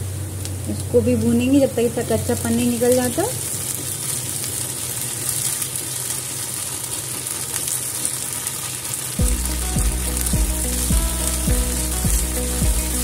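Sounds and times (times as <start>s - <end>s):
onions sizzling in hot oil: 0.0s - 13.0s
background music with deep bass: 9.2s - 13.0s.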